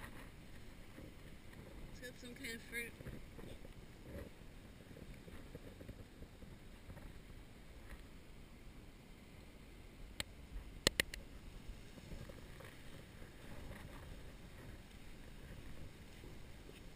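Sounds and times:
low rumble on microphone: 0.0 - 16.9
sharp clicks: 10.2 - 11.2
footsteps in sand: 11.7 - 16.9.

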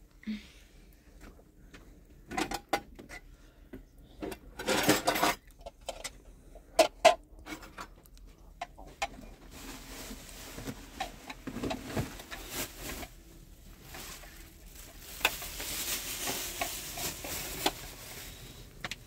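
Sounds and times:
utensil clinking and scraping pan: 4.6 - 6.1.

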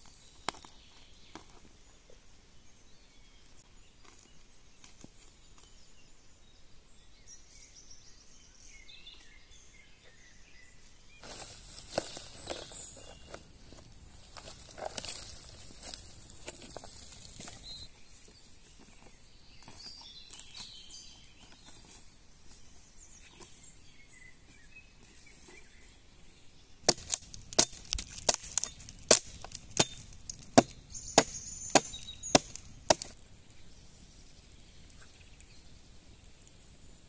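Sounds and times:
dry wood cracking: 11.2 - 17.9, 26.8 - 33.8
faint footsteps in leaf litter: 11.2 - 33.2.

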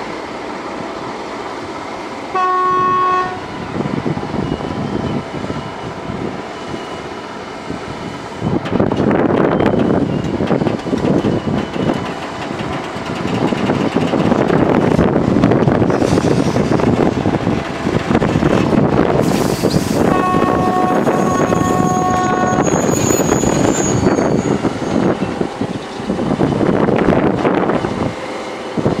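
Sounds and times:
train horn: 2.3 - 3.7, 20.0 - 24.1
train wheels rumbling and clattering: 3.5 - 29.0.

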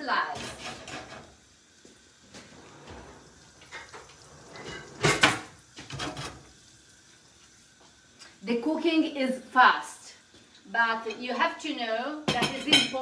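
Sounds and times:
kitchen handling clatter: 0.3 - 1.4, 2.4 - 6.5, 12.3 - 13.0.

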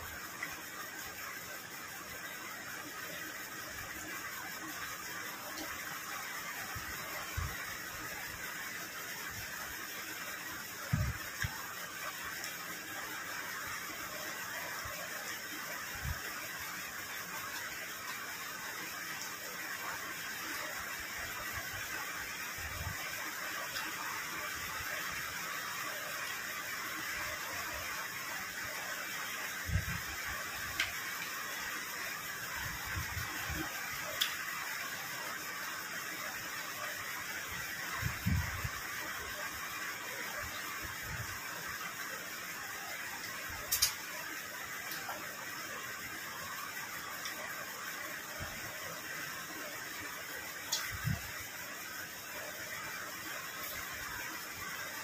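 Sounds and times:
steady background hiss: 0.0 - 55.0.

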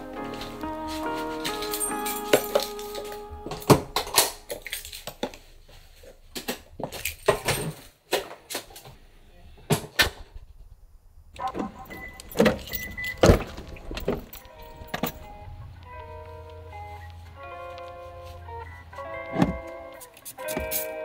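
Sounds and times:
handling knocks and rustles: 0.3 - 9.0, 11.5 - 15.6
keys jangling: 0.9 - 5.9, 6.8 - 7.9, 11.8 - 15.6, 20.0 - 21.0.

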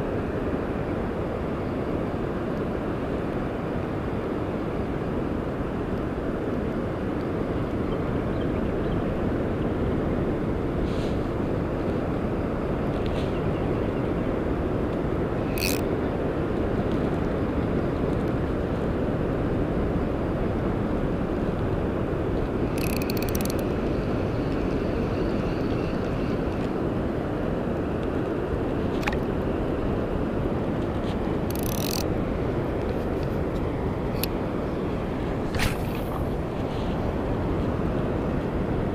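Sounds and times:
wind rumble on microphone: 0.0 - 38.9.

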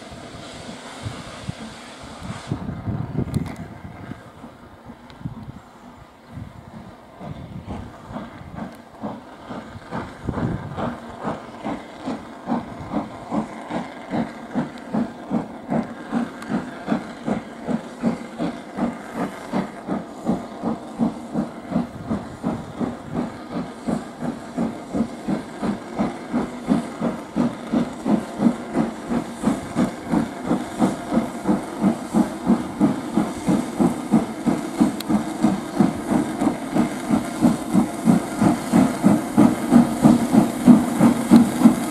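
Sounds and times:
steam hissing: 0.0 - 41.9
steam locomotive exhaust beats: 0.0 - 41.9.

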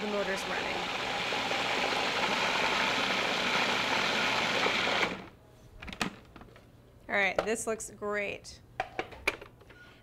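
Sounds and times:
food processor motor running: 0.0 - 5.3.

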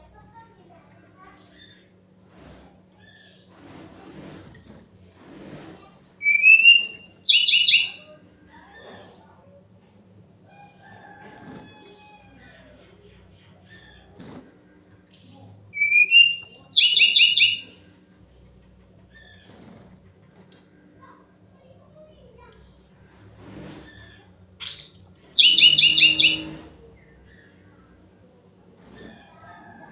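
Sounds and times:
bird whistle and trill song: 5.8 - 8.0, 15.8 - 17.7, 24.6 - 26.6.

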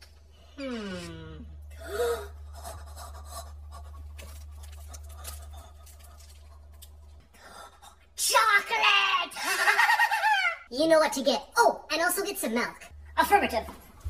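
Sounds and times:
wrapper crinkling: 4.0 - 7.2.

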